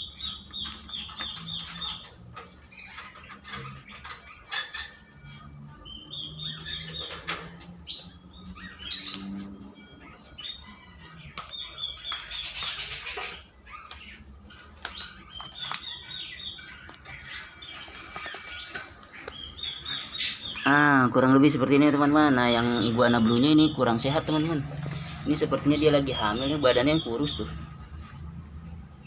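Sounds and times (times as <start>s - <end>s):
small birds chirping: 0.0s - 29.0s.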